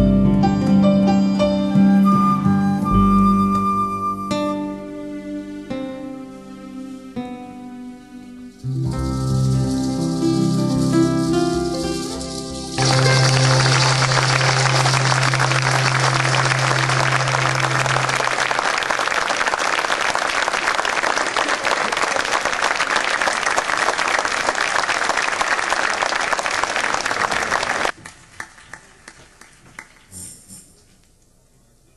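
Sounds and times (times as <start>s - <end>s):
audience applauding: 9.5s - 30.2s
ensemble low note: 12.7s - 18.6s.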